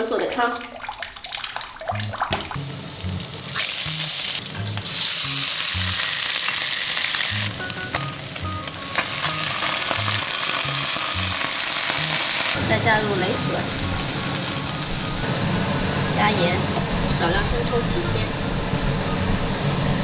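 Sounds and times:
fish sizzling in hot oil: 0.7 - 20.0
background music with bass line: 1.9 - 6.2, 7.3 - 15.4.

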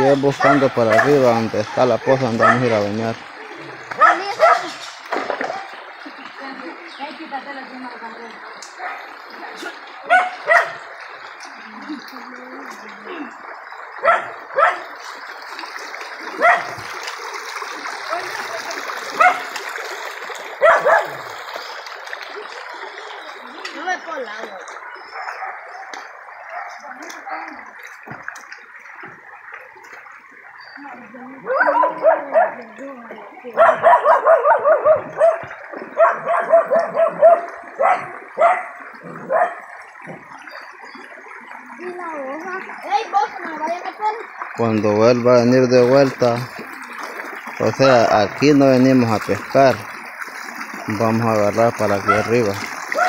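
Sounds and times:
stream running over rocks: 0.0 - 53.0
dog barking: 0.4 - 1.4, 2.4 - 2.8, 3.9 - 4.8, 5.4 - 5.8, 8.8 - 10.9, 14.0 - 14.9, 16.4 - 16.8, 19.1 - 19.5, 20.6 - 21.3, 25.1 - 27.4, 31.5 - 32.7, 33.6 - 39.7, 52.0 - 52.4.

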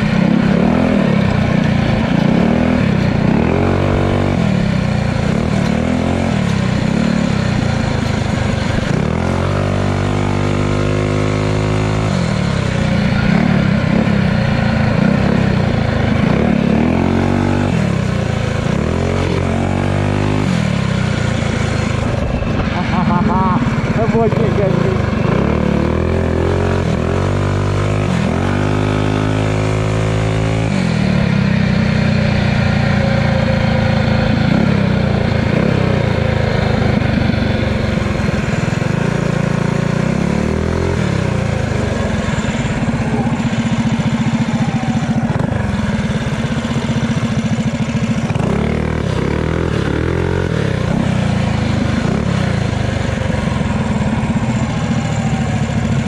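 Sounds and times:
small motorbike engine revving: 0.0 - 56.0.

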